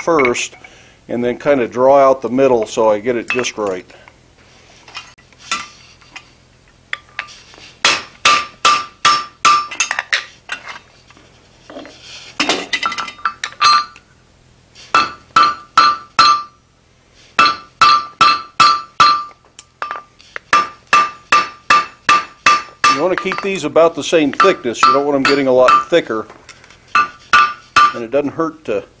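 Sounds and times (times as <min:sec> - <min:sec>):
hammer clanging on anvil: 0:03.3 - 0:03.6, 0:07.0 - 0:10.1, 0:12.4 - 0:14.0, 0:15.0 - 0:16.6, 0:17.4 - 0:26.1, 0:27.0 - 0:28.2.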